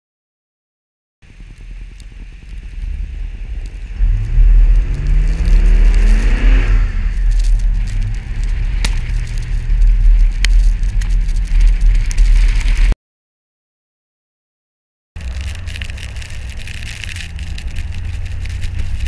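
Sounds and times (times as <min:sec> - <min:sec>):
wind rumble on microphone: 0:01.2 - 0:13.0, 0:15.2 - 0:19.0
truck engine revving: 0:02.8 - 0:11.4, 0:15.2 - 0:19.0.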